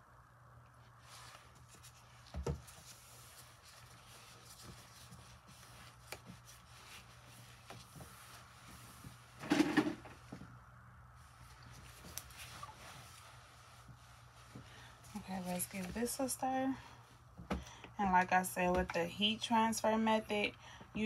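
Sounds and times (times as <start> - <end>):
paper towel wiping counter: 0.9 - 9.4, 11.2 - 16.7.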